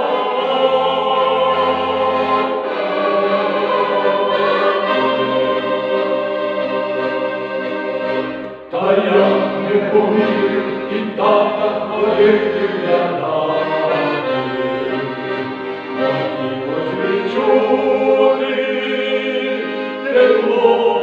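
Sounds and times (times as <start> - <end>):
accordion: 0.0 - 21.0
choir singing: 0.0 - 21.0.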